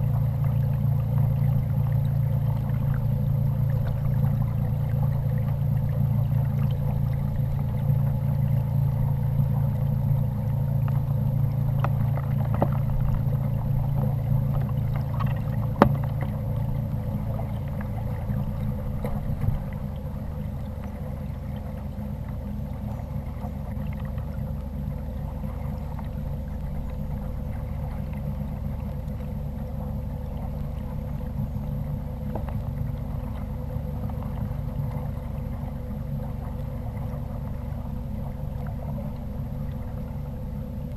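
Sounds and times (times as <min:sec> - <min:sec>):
low hum: 0:00.0 - 0:40.9
water against hull: 0:00.0 - 0:40.9.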